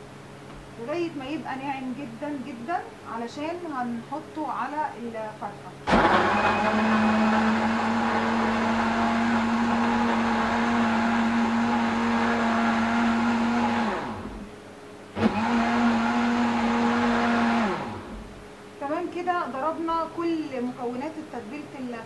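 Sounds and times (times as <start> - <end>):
blender running: 5.9 - 14.5, 15.2 - 18.3.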